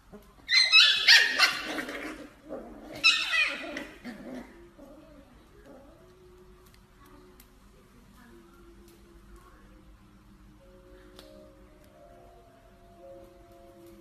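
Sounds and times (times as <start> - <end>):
puppies yipping and squealing: 0.4 - 4.6.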